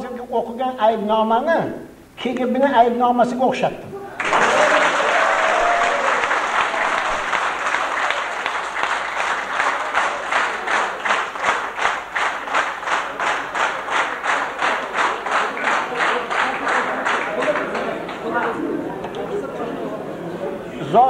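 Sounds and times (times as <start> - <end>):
audience applauding: 4.2 - 18.6.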